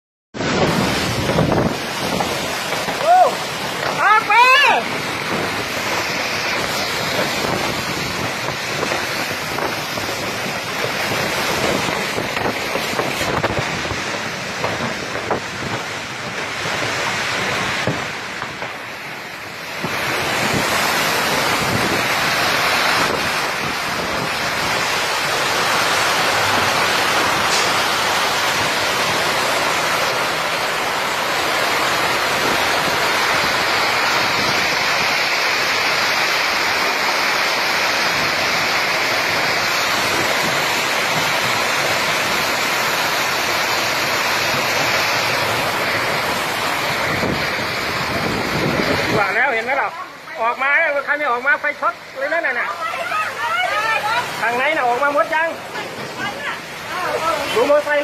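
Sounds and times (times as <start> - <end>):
wind buffeting microphone: 0.4 - 29.6, 30.6 - 36.2, 44.0 - 49.5
strong wind: 0.4 - 51.1
heavy rain: 0.4 - 58.0.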